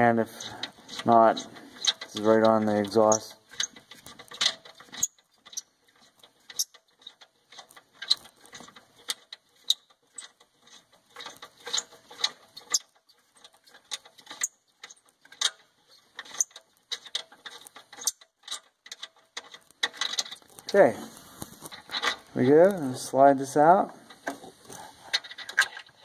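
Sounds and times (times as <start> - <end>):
clicks and scrapes on metal: 0.0 - 23.0, 23.9 - 26.0.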